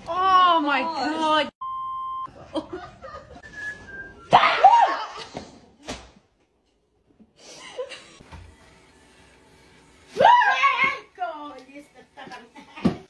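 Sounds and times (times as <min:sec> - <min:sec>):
censor bleep: 0:01.6 - 0:02.3.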